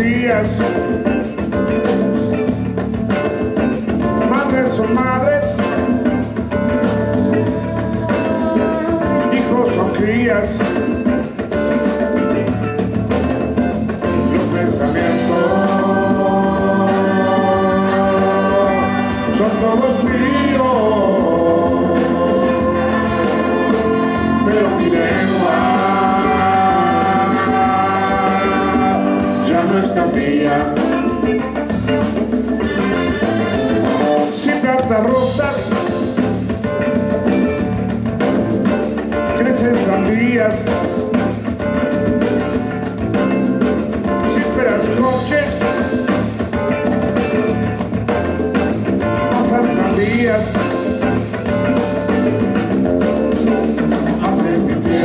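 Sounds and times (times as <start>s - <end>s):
conga drums: 0.0s - 55.0s
drum kit: 0.0s - 55.0s
electric bass: 0.0s - 55.0s
person singing: 4.2s - 11.0s, 14.0s - 32.2s, 49.1s - 51.0s, 53.5s - 55.0s.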